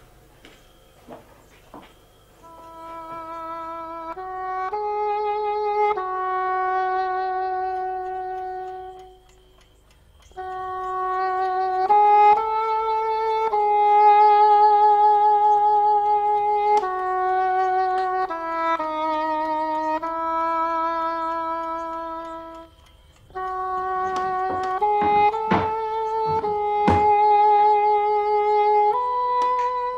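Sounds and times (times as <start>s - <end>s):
solo wind instrument melody: 2.0s - 29.9s.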